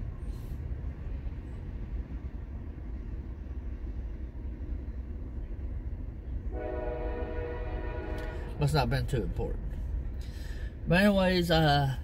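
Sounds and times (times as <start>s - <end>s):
passing train rumble: 0.0s - 12.0s
train horn chord: 6.5s - 8.6s.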